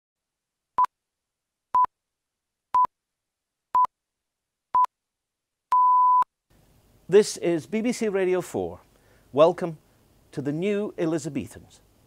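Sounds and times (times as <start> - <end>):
short beeps: 5.7 - 6.3.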